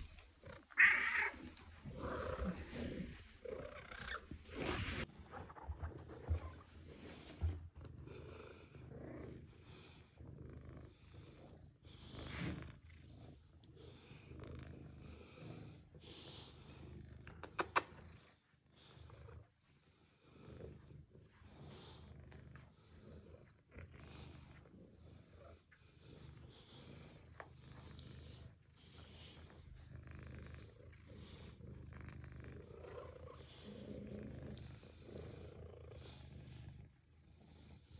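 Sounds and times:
cat purring: 0:00.0 - 0:37.9.

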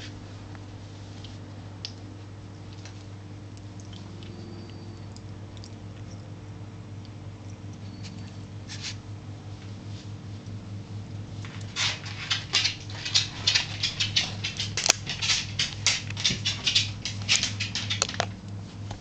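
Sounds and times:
faint steady hum: 0:00.0 - 0:19.0
puppies squeaking and yipping: 0:07.8 - 0:08.9.

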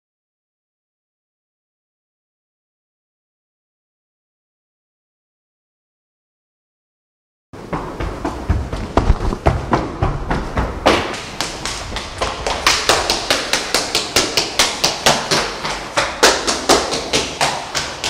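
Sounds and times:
running footsteps: 0:07.6 - 0:18.0.

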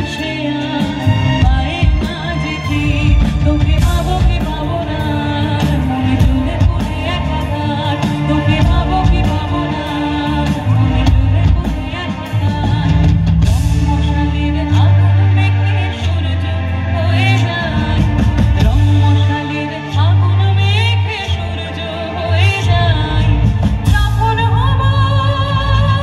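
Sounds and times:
steady drum beat: 0:00.0 - 0:16.9, 0:17.6 - 0:20.0, 0:22.6 - 0:26.0
live band music over a pa: 0:00.0 - 0:26.0
woman singing into a microphone: 0:00.0 - 0:26.0.

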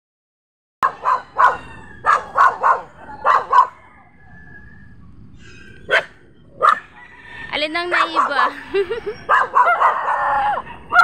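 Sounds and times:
dog barking: 0:00.8 - 0:03.9, 0:05.9 - 0:07.0, 0:07.9 - 0:08.5, 0:09.2 - 0:11.0.

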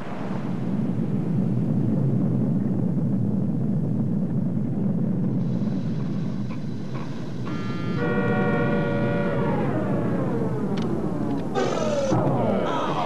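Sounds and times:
deep steady rumble: 0:00.0 - 0:13.0
higher tones: 0:07.1 - 0:13.0.

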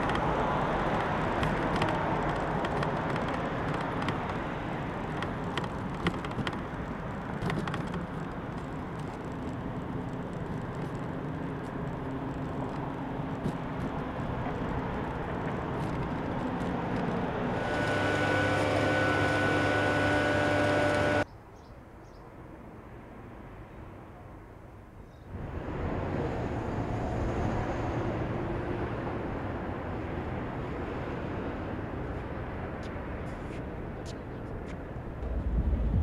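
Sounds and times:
engine humming: 0:00.0 - 0:21.3, 0:34.5 - 0:36.0
city street traffic rumble: 0:00.0 - 0:36.0
quiet outdoor ambience: 0:00.0 - 0:36.0.

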